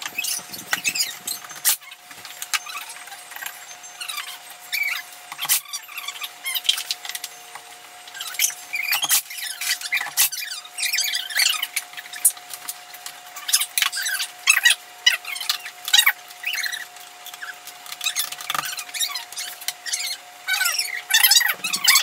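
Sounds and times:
high squeaky chirps: 0.0 - 2.0, 18.0 - 22.0.

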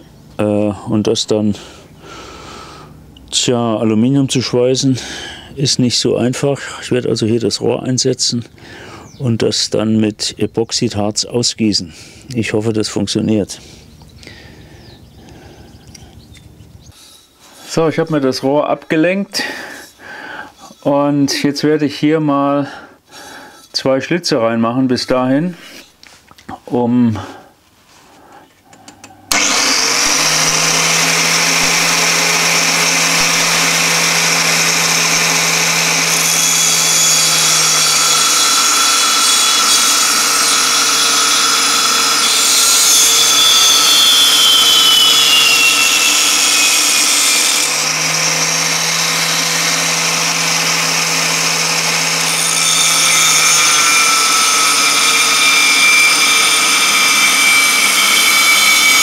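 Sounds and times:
angle grinder cutting metal: 29.3 - 59.0.

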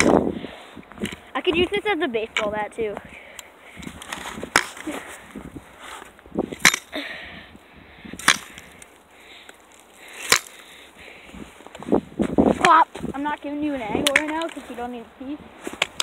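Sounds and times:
ice crunching: 0.0 - 7.2, 8.1 - 16.0
pole striking ice: 4.1 - 4.9, 6.6 - 6.9, 8.2 - 9.0, 9.7 - 10.6.

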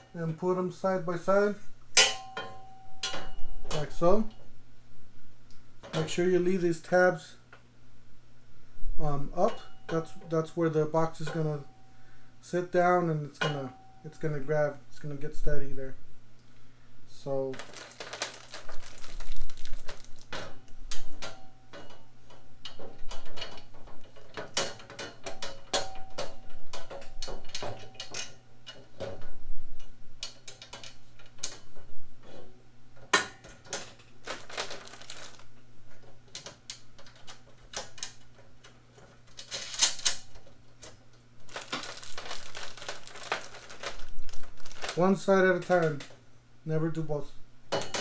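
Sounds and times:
faint low hum: 0.0 - 48.0
plastic bag rustling: 17.5 - 20.6, 34.1 - 35.6, 41.4 - 46.0
metal parts clinking and knocking: 17.6 - 29.2, 33.0 - 46.2.

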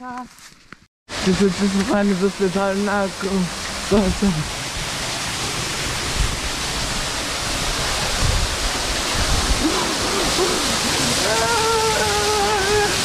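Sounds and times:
waterfall rushing: 1.1 - 13.0.

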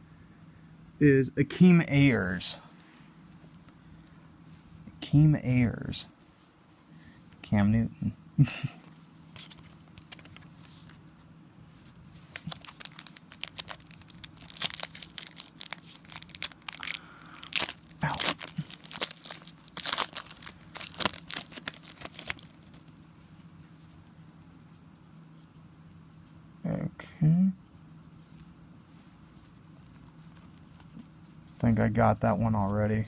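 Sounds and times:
foil wrapper tearing and crinkling: 12.3 - 22.8.

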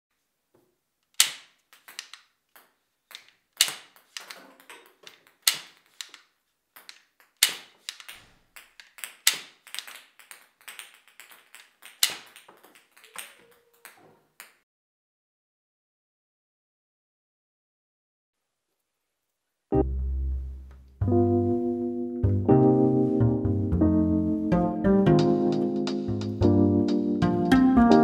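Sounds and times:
toy gun wooden snaps: 1.0 - 14.6.

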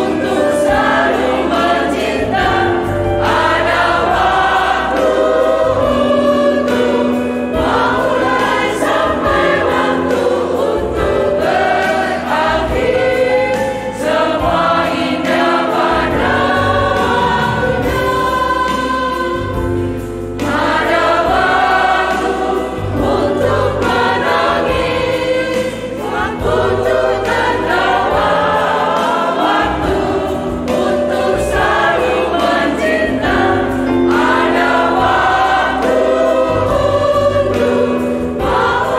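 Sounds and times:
women's choir singing a hymn: 0.0 - 38.9.

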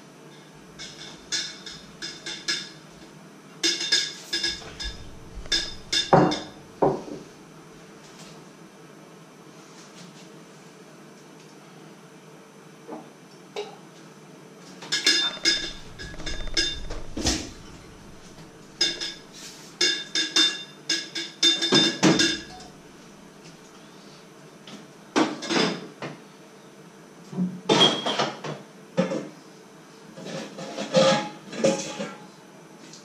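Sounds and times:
pots and dishes clattering: 3.7 - 7.1.

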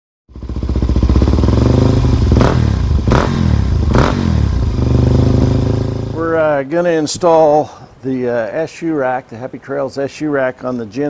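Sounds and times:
motorcycle engine revving: 0.3 - 6.4.

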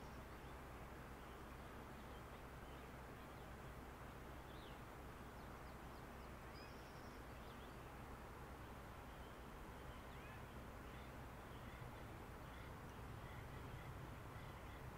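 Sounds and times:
faint outdoor ambience: 0.0 - 14.9
faint bird chirps: 4.4 - 14.9.

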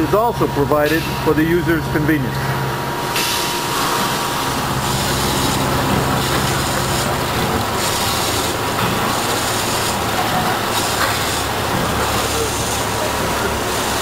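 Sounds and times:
grinder wheel and coolant hiss: 3.2 - 14.0.

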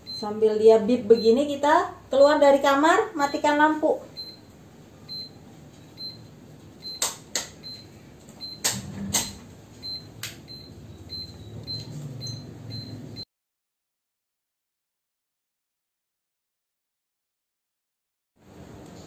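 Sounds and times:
short high beeps: 5.1 - 5.4, 6.0 - 13.0
sharp clicks and knocks: 6.8 - 9.5.

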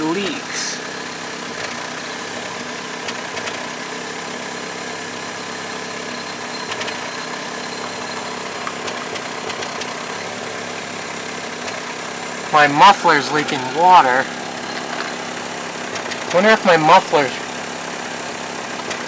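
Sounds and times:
car engine idling: 0.0 - 19.0.

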